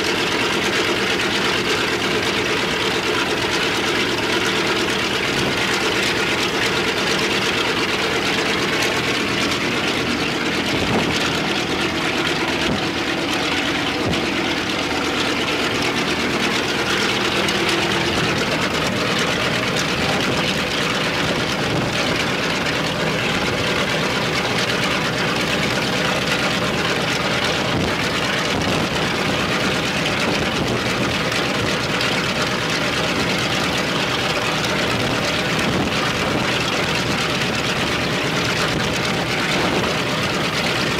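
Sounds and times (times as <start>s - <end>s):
radial piston engine running: 0.0s - 40.9s.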